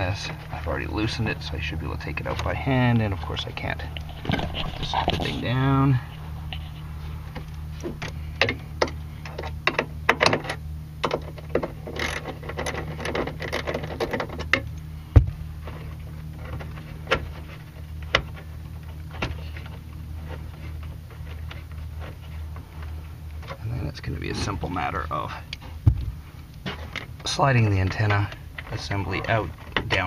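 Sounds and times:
steady low hum: 0.0 - 30.0
small metal clicks and rattles: 8.4 - 14.8.

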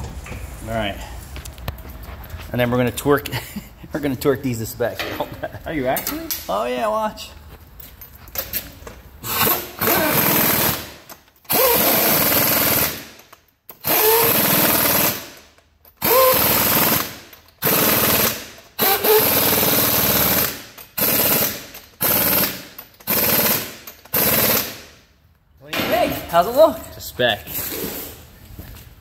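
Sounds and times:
impact wrench whining and hammering: 8.2 - 25.1.

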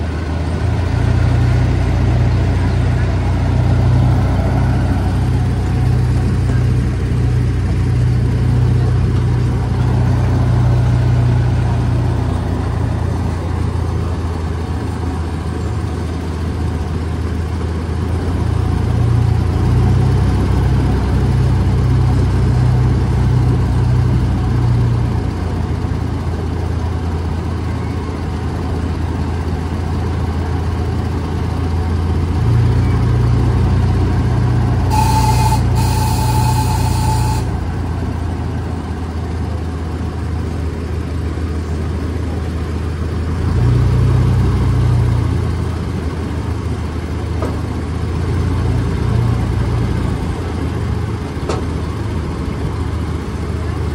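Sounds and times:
miniature train engine running: 34.7 - 39.2
high-pitched train horn toots: 34.8 - 38.1.

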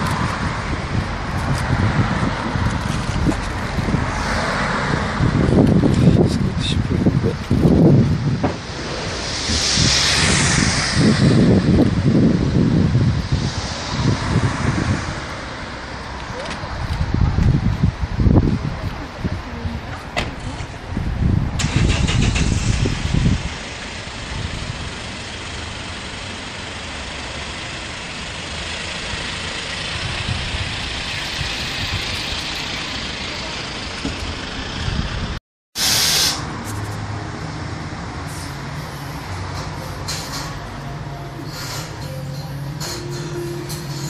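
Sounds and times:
passing traffic hiss: 0.0 - 44.0
vehicle engine rumbling: 0.0 - 44.0
short loud hiss: 35.8 - 36.5.

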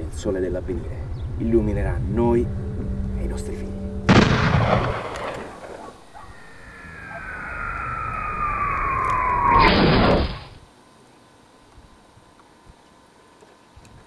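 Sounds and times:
flying saucer falling whine: 1.0 - 10.6
rumbling boom: 4.0 - 10.6
short rushing burst: 5.4 - 10.6.

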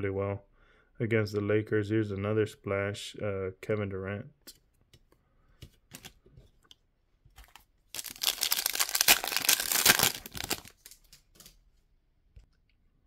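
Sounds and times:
foil wrapper tearing and crinkling: 7.4 - 11.2.

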